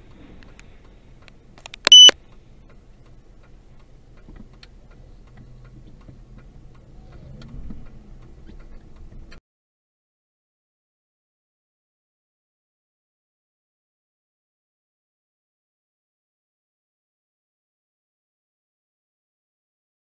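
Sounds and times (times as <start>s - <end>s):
high-pitched electronic beep: 1.9s - 2.1s.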